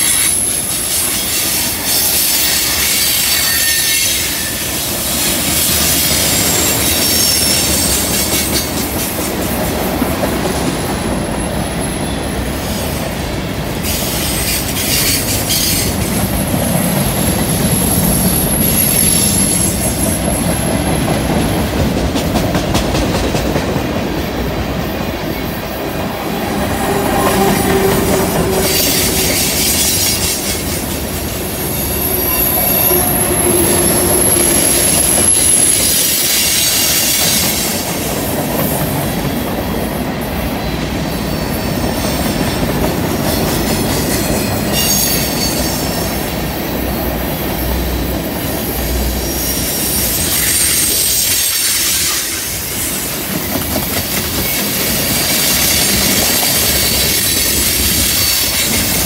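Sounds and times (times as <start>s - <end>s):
wheel squeal: 0.0s - 4.6s, 17.7s - 20.2s, 54.4s - 59.0s
freight train wheels rumbling: 0.0s - 59.0s.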